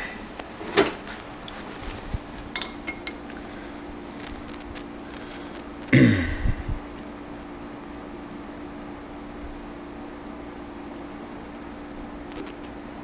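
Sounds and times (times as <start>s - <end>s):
faint steady hum: 0.0s - 13.0s
metallic clicks and clinks: 2.6s - 3.2s.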